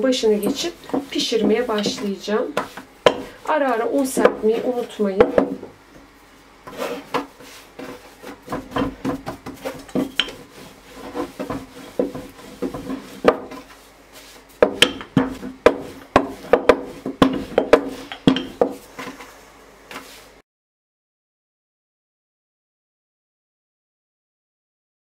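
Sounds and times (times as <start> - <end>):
rolling pin rolling dough: 0.0 - 20.4.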